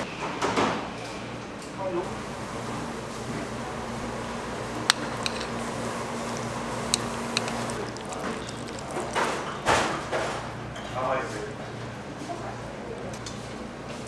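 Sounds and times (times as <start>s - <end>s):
room noise with low hum: 0.0s - 14.0s
wet squishing of noodles: 4.5s - 10.6s
chopsticks clicking against bowl: 4.8s - 5.5s, 6.4s - 9.2s.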